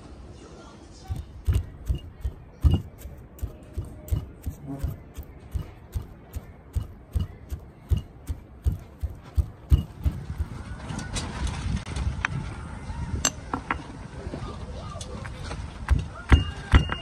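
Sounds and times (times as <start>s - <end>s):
stone pestle pounding in mortar: 1.2s - 10.6s.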